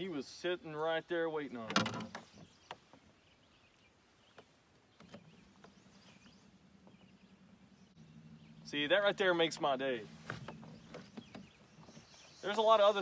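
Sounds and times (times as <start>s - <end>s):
low steady hum: 0.0s - 12.9s
distant bird chirps: 0.0s - 13.0s.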